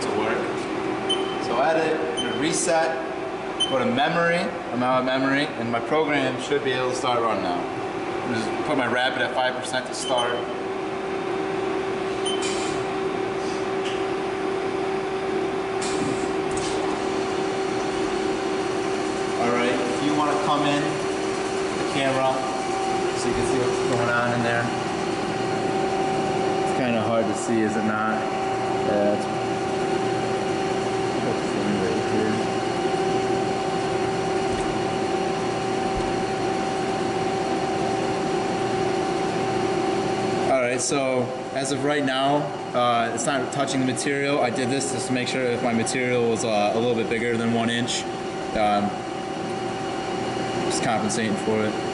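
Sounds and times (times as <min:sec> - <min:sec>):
lathe machine hum: 0:10.5 - 0:51.9.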